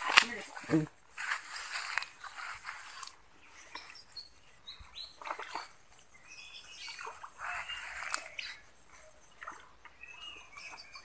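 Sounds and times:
soft rustling: 0.0s - 4.1s
faint bird chirps: 3.4s - 11.0s.

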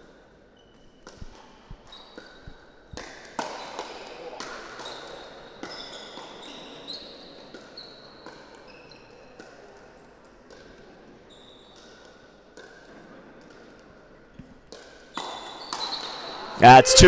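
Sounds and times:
shoes squeaking on court: 0.6s - 3.0s, 4.4s - 9.4s, 11.2s - 12.2s, 14.9s - 16.3s.

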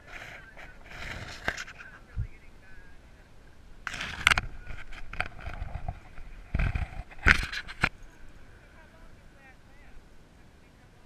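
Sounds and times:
fur and harness rubbing: 0.0s - 2.2s, 3.8s - 8.2s.

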